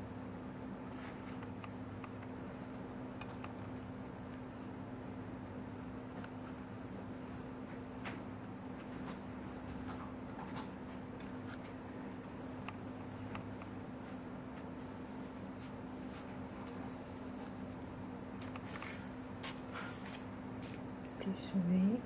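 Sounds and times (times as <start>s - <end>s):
steady low hum: 0.0s - 22.0s
paintbrush brushing on paper: 14.0s - 17.8s.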